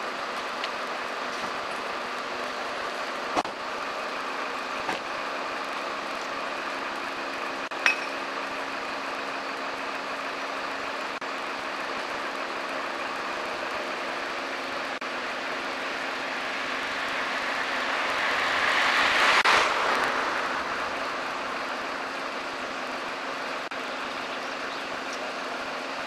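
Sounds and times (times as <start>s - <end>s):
truck engine humming: 0.0s - 26.0s
sharp metallic clink: 7.8s - 8.2s.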